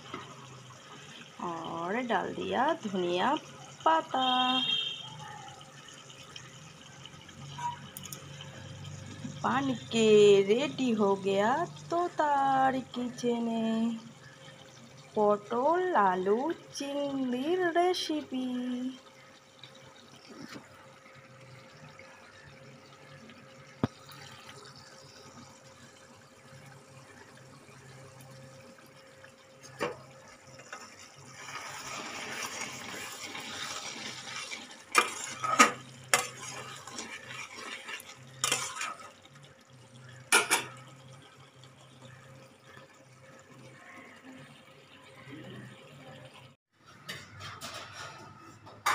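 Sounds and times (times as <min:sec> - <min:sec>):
spatula stirring thick curry: 0:30.6 - 0:39.2.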